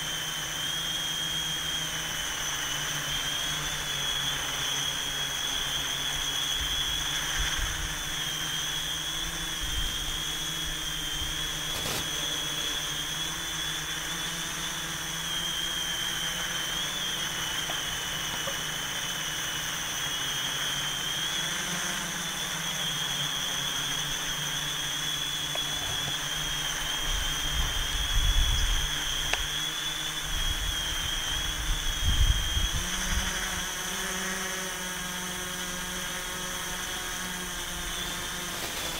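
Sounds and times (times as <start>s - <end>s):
multirotor drone whine: 0.0s - 38.9s
wind rumble on microphone: 27.0s - 29.2s, 30.3s - 33.6s.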